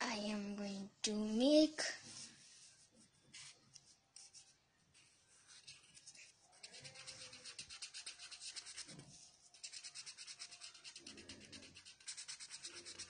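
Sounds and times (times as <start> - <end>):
pen scratching on paper: 5.5 - 13.0.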